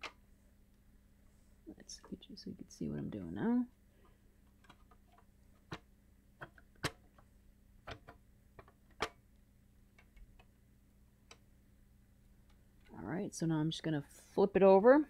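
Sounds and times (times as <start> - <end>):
clicks and taps of plastic parts: 4.5 - 9.2.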